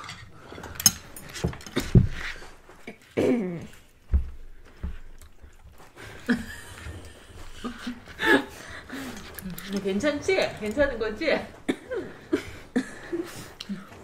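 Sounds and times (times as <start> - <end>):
chewing: 5.0 - 11.0.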